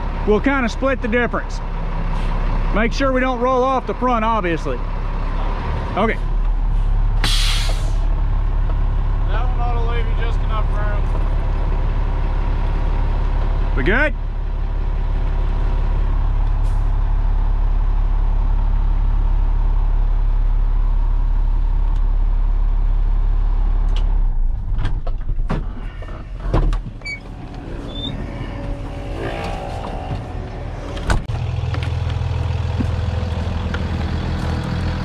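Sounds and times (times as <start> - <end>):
diesel truck engine idling: 29.7 - 35.0.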